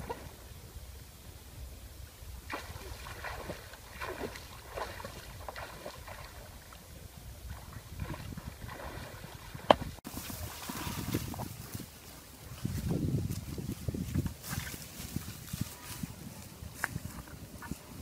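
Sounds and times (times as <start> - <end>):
water splashing and sloshing: 0.0 - 0.6, 2.3 - 16.0.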